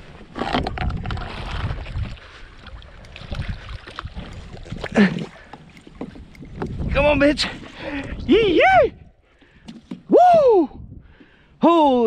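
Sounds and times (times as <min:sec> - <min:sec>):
wind on microphone: 0:00.0 - 0:11.4
person shouting: 0:08.3 - 0:09.0, 0:10.1 - 0:10.8.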